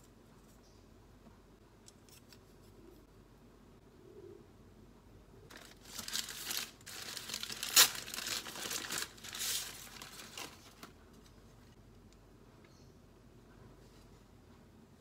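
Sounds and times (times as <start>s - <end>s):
paper crinkling and crumpling: 5.5s - 11.4s.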